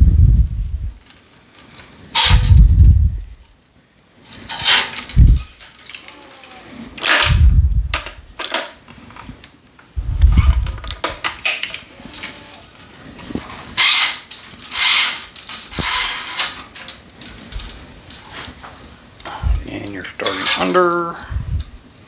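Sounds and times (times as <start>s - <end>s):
low thump: 7.3s - 8.0s
clicks of clamps: 8.0s - 8.8s
string scraping through weave: 11.9s - 18.6s.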